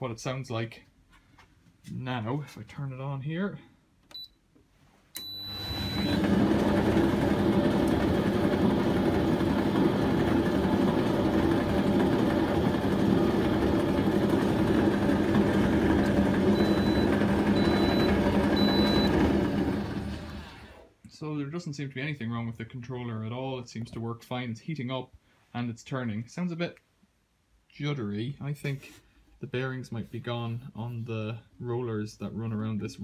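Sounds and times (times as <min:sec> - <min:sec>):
tumble dryer running: 0:05.4 - 0:20.9.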